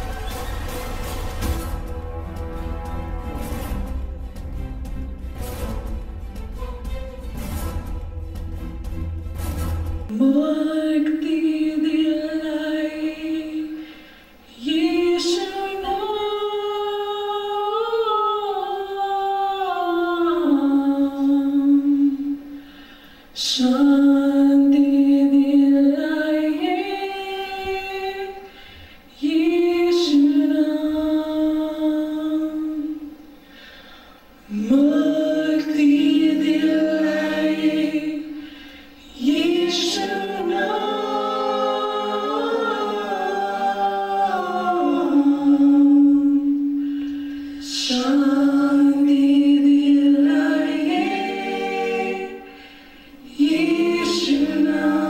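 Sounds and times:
a cappella group singing in harmony: 10.1s - 55.0s.

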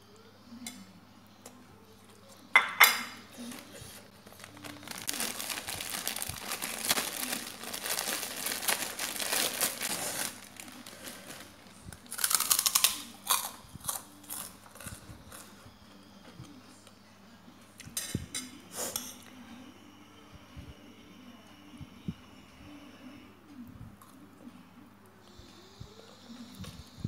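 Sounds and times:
crumpled material crinkling: 3.4s - 13.0s.

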